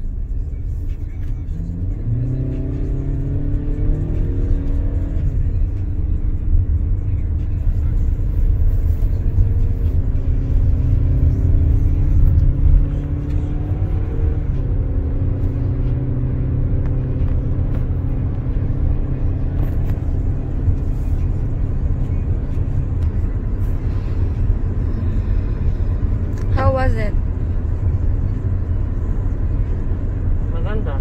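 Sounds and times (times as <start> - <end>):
tyre and engine rumble: 0.0 - 31.0.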